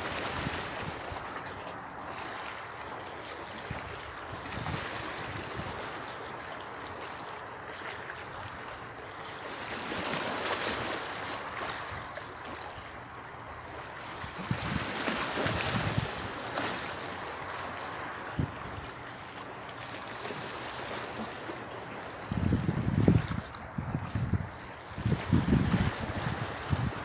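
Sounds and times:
waves sloshing against rocks: 0:00.0 - 0:27.0
wind on microphone: 0:03.6 - 0:05.9, 0:14.2 - 0:16.7, 0:18.2 - 0:19.0, 0:22.2 - 0:27.0.

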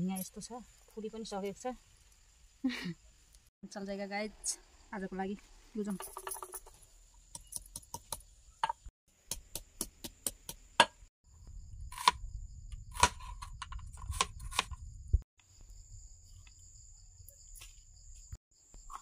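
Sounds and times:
knife chopping onion on board: 0:07.7 - 0:11.0
high insect trill: 0:11.3 - 0:19.0.

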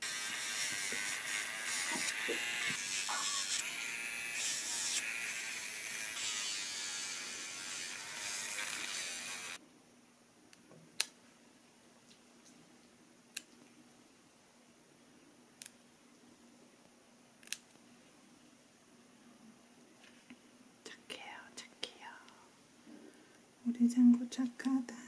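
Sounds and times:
pet nail grinder running: 0:00.0 - 0:09.6.

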